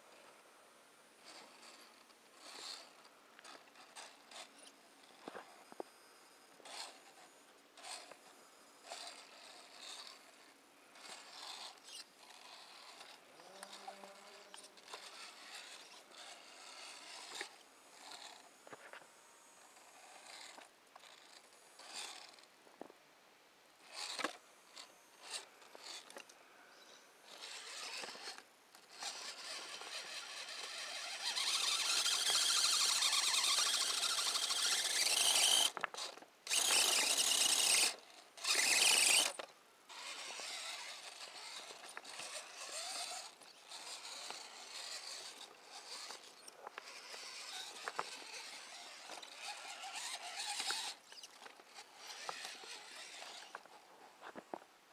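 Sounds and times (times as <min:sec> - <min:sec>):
electric motor whining: 0:06.6 - 0:22.4, 0:27.3 - 0:53.8.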